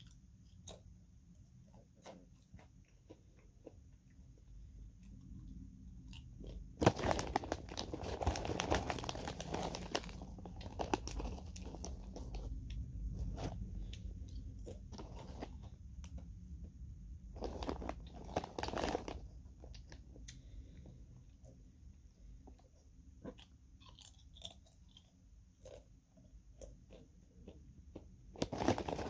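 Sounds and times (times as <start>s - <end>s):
banana chips crunching: 6.1s - 16.2s, 17.4s - 20.0s, 28.4s - 29.0s.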